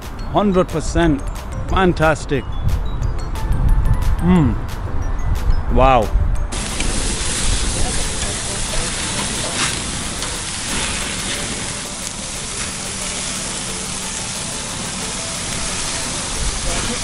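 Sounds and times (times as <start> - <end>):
wind rumbling on microphone: 2.4 - 11.8
meat sizzling on a grill: 6.5 - 17.0.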